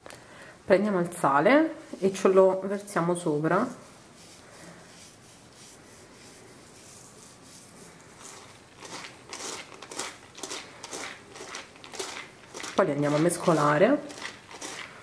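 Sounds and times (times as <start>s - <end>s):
seeds rubbing against mesh strainer: 3.7s - 15.0s
salt sprinkling on seeds: 3.8s - 15.0s.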